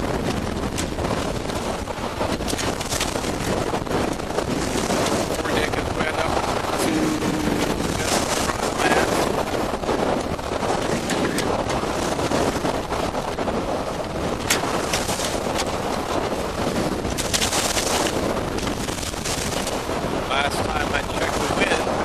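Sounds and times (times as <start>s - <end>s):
water splashing along hull: 0.0s - 22.0s
wind buffeting microphone: 0.0s - 22.0s.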